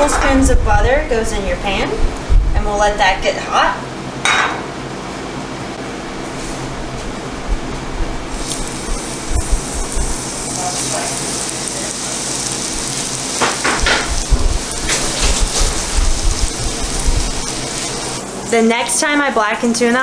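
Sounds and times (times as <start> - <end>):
fish sizzling in butter: 8.3 - 19.0.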